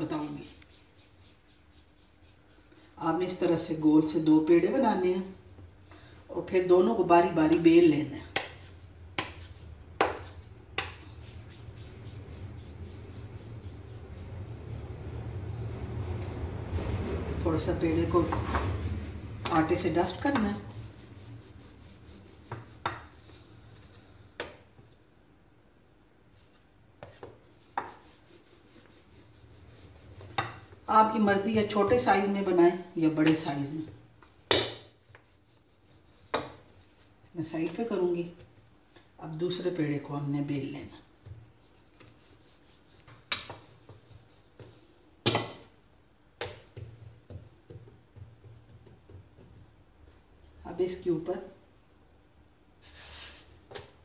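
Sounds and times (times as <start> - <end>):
rolling pin rubbing dough: 0.0 - 3.9, 8.3 - 14.7, 17.8 - 24.0, 26.3 - 32.4, 33.3 - 38.5, 41.2 - 45.0.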